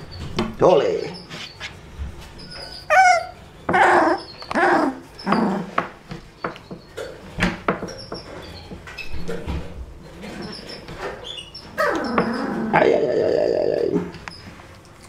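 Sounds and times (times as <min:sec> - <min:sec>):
puppy whining: 0:01.0 - 0:05.9, 0:10.3 - 0:14.6
puppy grunting and yipping: 0:02.4 - 0:05.9, 0:10.3 - 0:14.2.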